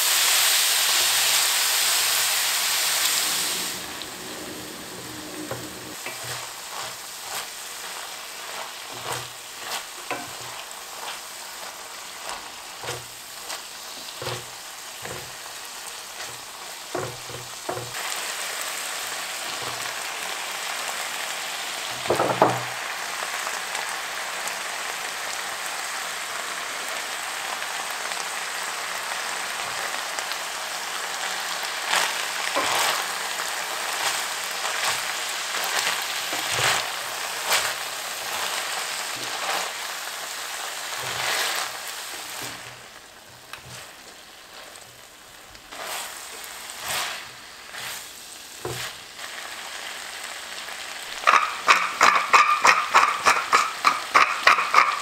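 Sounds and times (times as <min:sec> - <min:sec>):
meat sizzling in a pot: 0:00.0 - 0:55.0
wooden spatula scraping and tapping: 0:04.1 - 0:15.5, 0:16.2 - 0:18.0, 0:32.6 - 0:33.1, 0:34.0 - 0:37.8, 0:41.0 - 0:42.8, 0:43.5 - 0:43.9, 0:48.6 - 0:49.0, 0:51.3 - 0:55.0.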